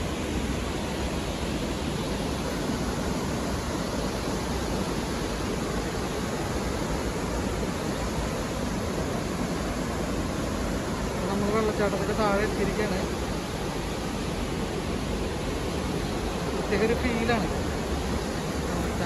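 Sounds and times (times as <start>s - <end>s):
waterfall rushing: 0.0s - 19.0s.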